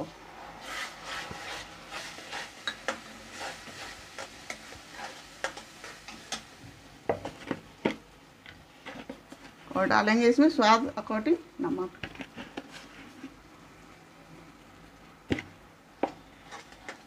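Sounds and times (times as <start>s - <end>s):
puree sizzling in hot oil: 0.0s - 9.8s
metal spatula scraping pan: 0.6s - 6.4s.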